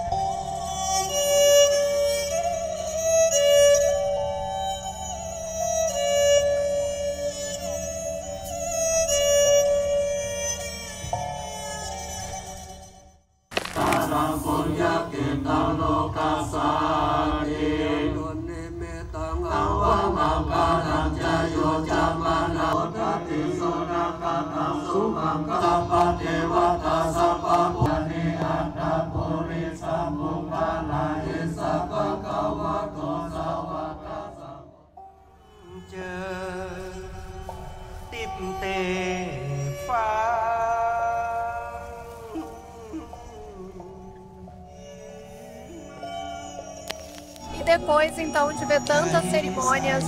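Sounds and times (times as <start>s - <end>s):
monks chanting over loudspeakers: 13.6s - 35.0s, 48.4s - 50.0s.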